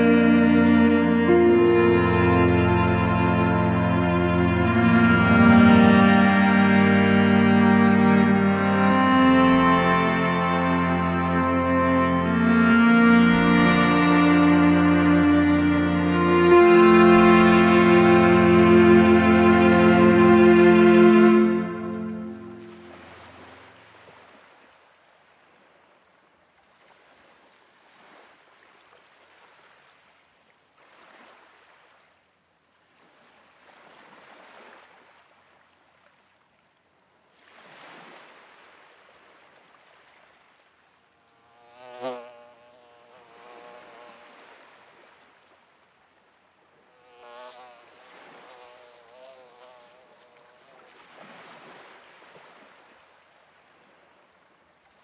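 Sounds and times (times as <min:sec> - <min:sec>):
fly buzzing: 0:00.0 - 0:23.6, 0:41.0 - 0:45.1, 0:46.8 - 0:51.8.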